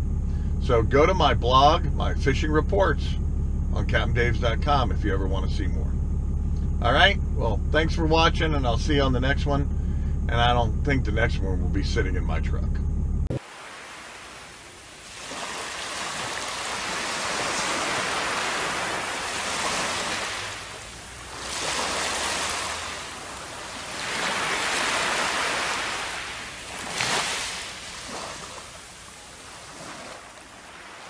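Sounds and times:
ocean waves washing up beach: 13.4 - 31.0.

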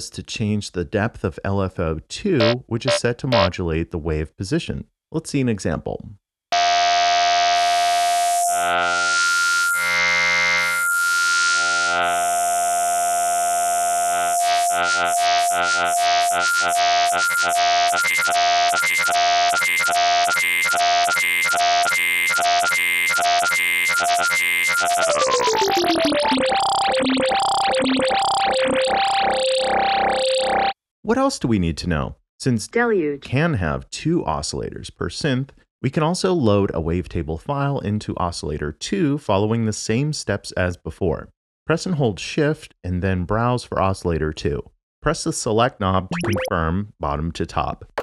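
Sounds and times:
sustained synth note wobbling: 24.7 - 30.7.

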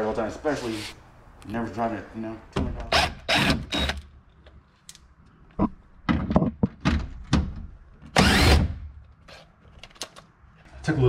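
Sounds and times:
knocks and thunks of tools: 6.0 - 8.8.

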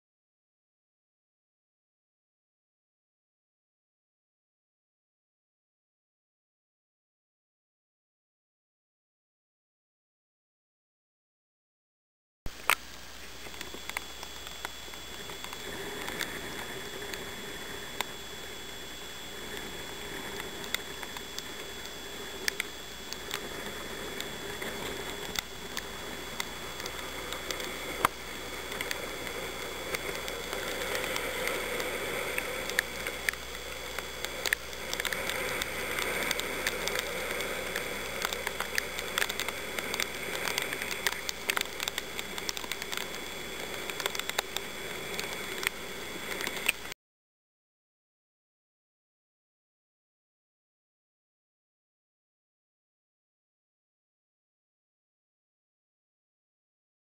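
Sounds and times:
rushing wind and sea: 13.3 - 46.9.

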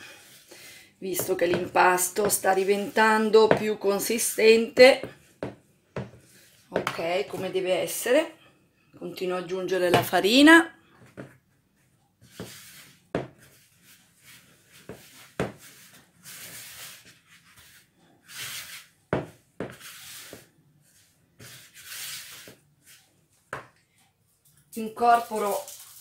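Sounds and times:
spatula scraping dough in bowl: 1.1 - 4.4, 12.2 - 23.0.

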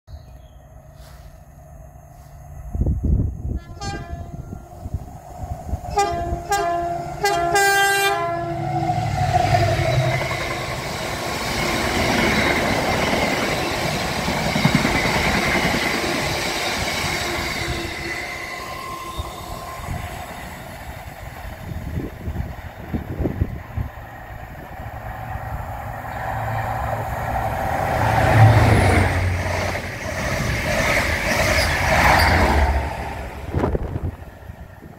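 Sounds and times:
train wheel and wagon noise: 0.7 - 34.9
locomotive horn blasts: 3.6 - 4.6, 5.9 - 8.7.

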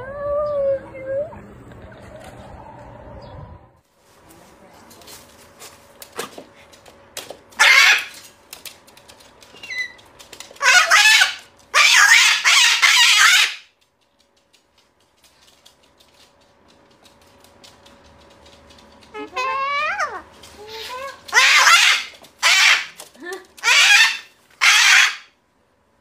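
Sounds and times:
cockatoo screeching: 7.6 - 8.2, 10.6 - 13.7, 19.2 - 23.0, 23.6 - 25.4.

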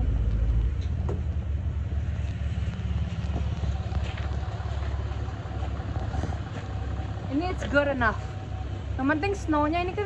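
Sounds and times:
pickup truck engine rumbling: 0.0 - 10.0.

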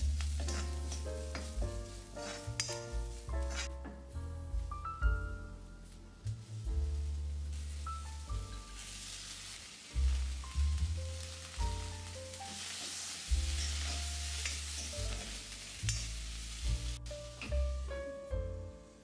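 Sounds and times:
vegetables sizzling in a pan: 0.0 - 3.7, 5.8 - 17.9
soft background music: 0.0 - 19.0
metal spatula stirring: 0.2 - 3.8, 12.6 - 16.1.

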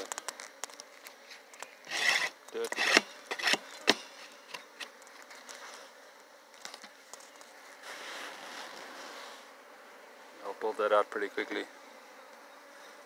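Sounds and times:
bees buzzing: 0.0 - 13.0
hive tool knocking on wood: 2.6 - 5.2.

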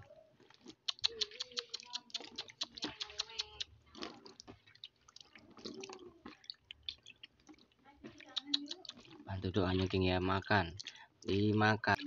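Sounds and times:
quick clicks and ticks: 0.8 - 3.7.

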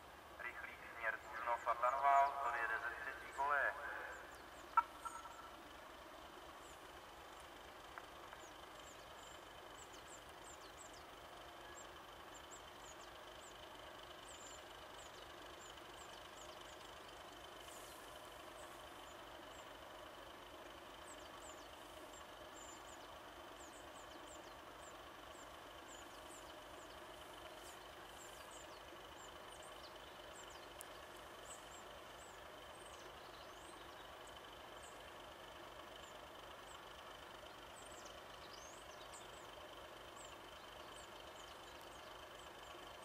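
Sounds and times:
steady whine: 0.0 - 6.0
diesel engine idling: 0.0 - 43.0
small birds chirping: 0.0 - 43.0.

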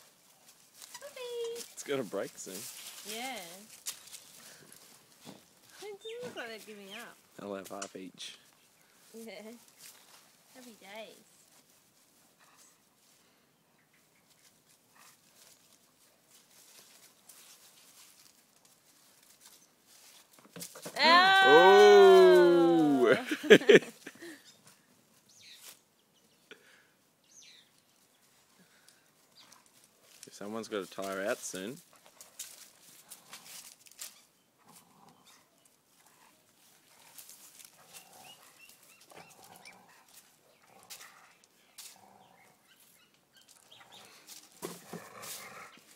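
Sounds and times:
dogs scuffling and pattering: 0.0 - 7.8, 14.2 - 21.0, 29.2 - 45.9
dogs growling softly: 34.6 - 42.7, 43.6 - 45.9.

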